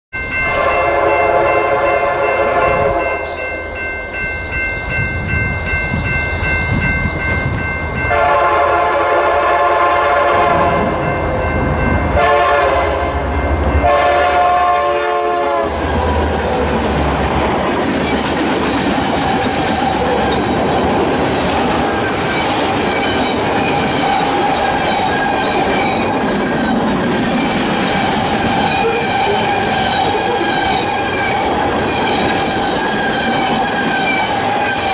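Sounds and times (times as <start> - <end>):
train air horn blasts: 0.4 - 3.7, 8.1 - 11.4, 12.1 - 16.1.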